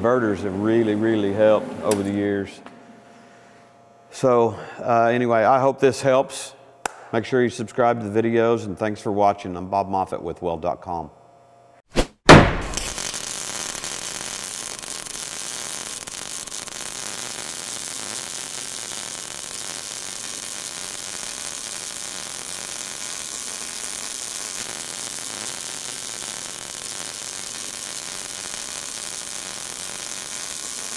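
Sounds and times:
welding arc sizzling hiss: 12.6s - 30.9s.

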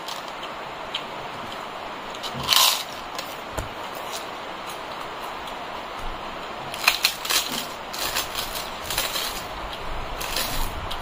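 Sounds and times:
poppadom crackling as it is crushed: 0.0s - 5.1s, 6.7s - 11.0s.

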